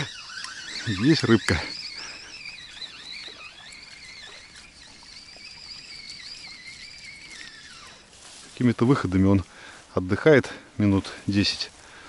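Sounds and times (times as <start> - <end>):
fishing reel gears whining: 0.0 - 9.4.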